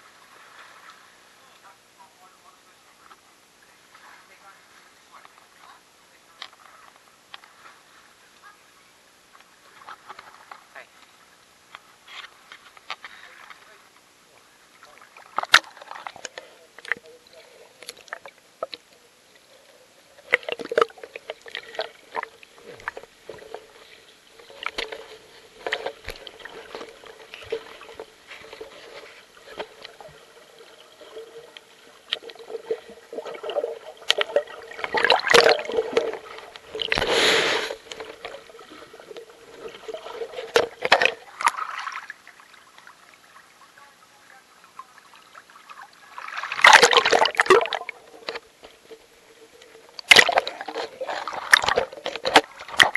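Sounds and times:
underwater water sloshing: 0.0 - 1.8, 9.4 - 52.9
faint steady hum: 0.0 - 52.9
water splashing: 13.2 - 52.9
underwater clicks and knocks: 20.2 - 37.1, 37.8 - 41.6, 46.6 - 52.9.

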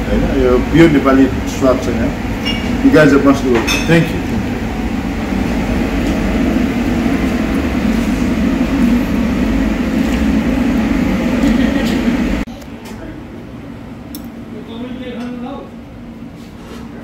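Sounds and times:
low rumbling background noise: 0.0 - 17.0.

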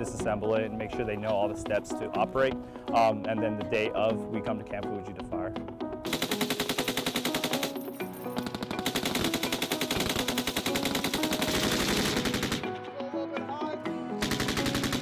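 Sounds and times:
machine gun automatic fire: 6.1 - 7.8, 8.4 - 12.7, 14.2 - 15.0.

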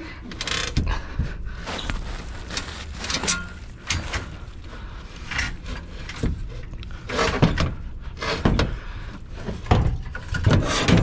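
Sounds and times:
low rumble: 1.2 - 7.0
metal parts scraping and clunking: 1.7 - 8.4.

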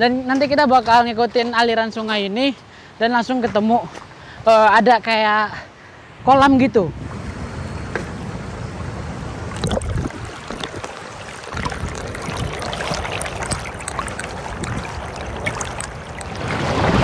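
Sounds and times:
water splashes: 9.3 - 17.0
river rushing over stones: 9.5 - 17.0.

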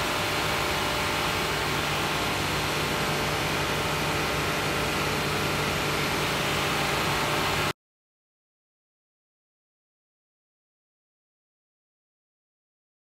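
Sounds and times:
car engine idling: 0.0 - 7.7.

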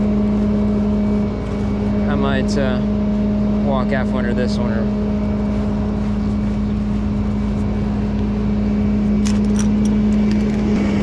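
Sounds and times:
tie-down straps clicking: 9.2 - 10.8.

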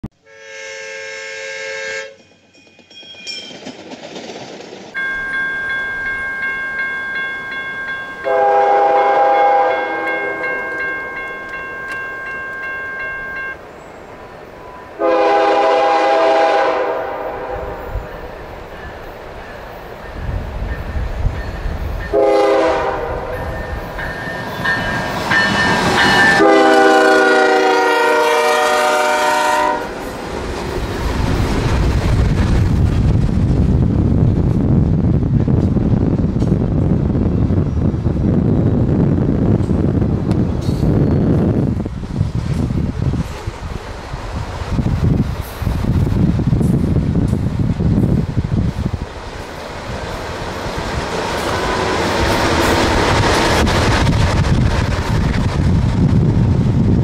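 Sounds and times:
locomotive air horn blasts: 0.2 - 2.2, 8.2 - 10.7, 15.0 - 17.9, 22.1 - 23.4, 26.4 - 30.0
diesel locomotives rumbling: 0.2 - 57.0.

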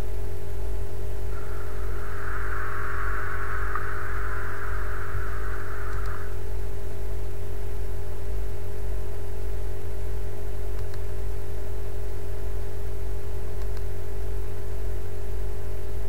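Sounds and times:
background hum and hiss: 0.0 - 16.0
low rumble: 1.3 - 7.2
faint mouse click: 10.8 - 11.0, 13.6 - 13.9.

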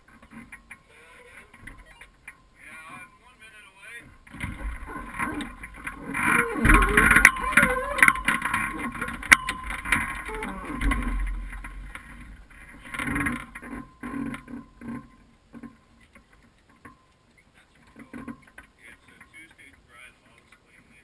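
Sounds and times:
hang glider frame clicks and knocks: 4.0 - 19.8.

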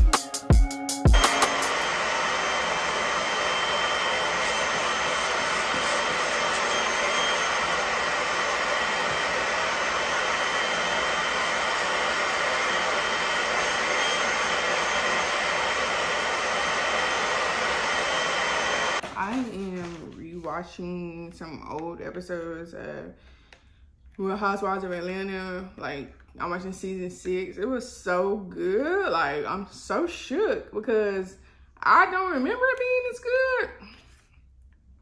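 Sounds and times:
electric appliance rushing hiss: 1.1 - 19.0.

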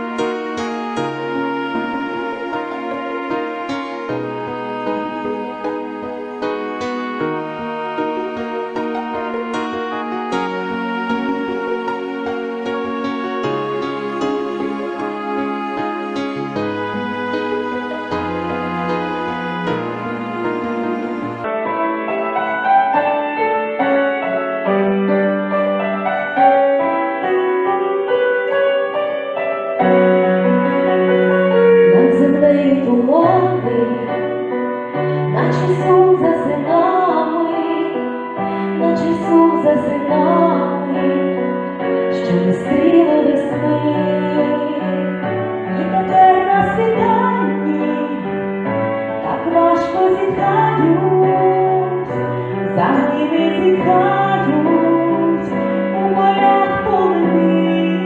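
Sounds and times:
keyboard song: 0.0 - 58.0
women singing: 1.2 - 5.9, 31.9 - 34.2, 35.3 - 38.0, 38.8 - 41.4, 42.2 - 45.0, 45.8 - 48.2, 49.2 - 52.0, 52.7 - 58.0.

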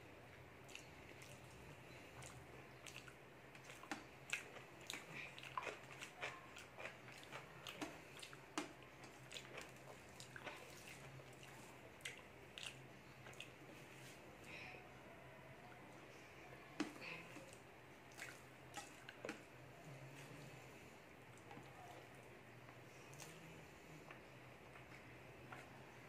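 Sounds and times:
chewing: 0.6 - 14.3, 15.7 - 26.0
fingers squishing wet food: 0.6 - 14.3, 16.8 - 19.6.

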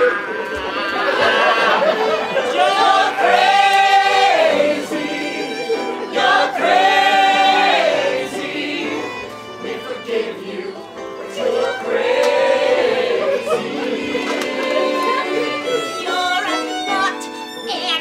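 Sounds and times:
cast singing in chorus: 0.0 - 16.6
musical accompaniment: 0.0 - 18.0.

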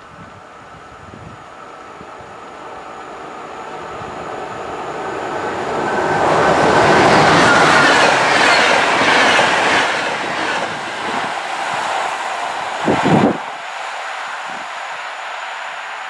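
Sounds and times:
train wheels on rails passing: 0.0 - 16.0.

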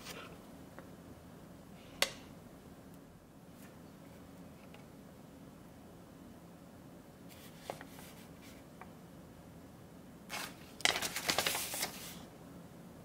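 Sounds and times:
paper rustling and crinkling: 10.3 - 12.3.

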